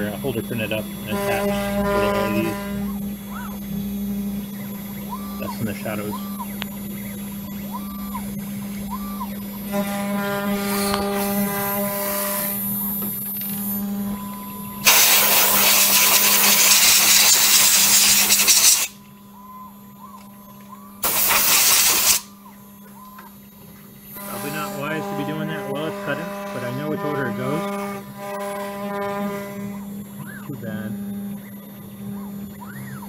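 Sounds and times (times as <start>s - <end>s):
end mill cutting wood: 0.0s - 3.8s, 9.6s - 14.1s, 24.1s - 31.2s
router spindle humming: 0.0s - 33.0s
air blow gun hissing: 14.8s - 19.0s, 21.0s - 22.3s.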